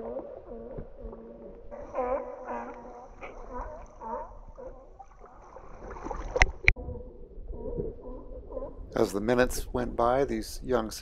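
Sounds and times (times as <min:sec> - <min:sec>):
young seals bleating: 0:00.0 - 0:04.8.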